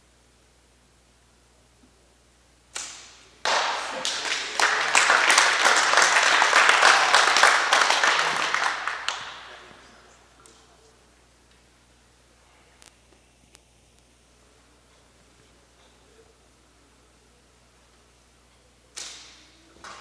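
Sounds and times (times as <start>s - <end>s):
small group applauding: 3.4s - 10.7s, 19.0s - 20.0s.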